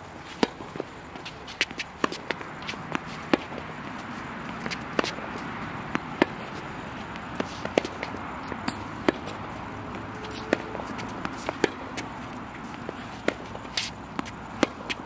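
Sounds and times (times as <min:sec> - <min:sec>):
tennis ball hit by racquet: 0:00.3 - 0:15.0
ball bouncing on court: 0:00.4 - 0:06.5, 0:07.2 - 0:15.0
shoe scuffs and steps: 0:06.5 - 0:15.0.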